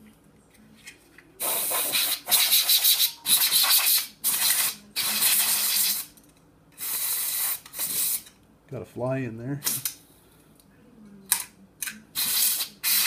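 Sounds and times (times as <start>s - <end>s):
compressed air hissing bursts: 1.4s - 6.1s, 6.8s - 8.3s, 12.2s - 13.0s.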